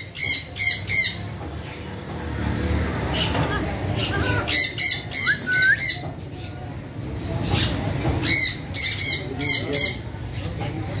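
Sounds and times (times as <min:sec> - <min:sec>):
parrots squawking: 0:00.0 - 0:01.9, 0:02.6 - 0:06.0, 0:07.2 - 0:10.2.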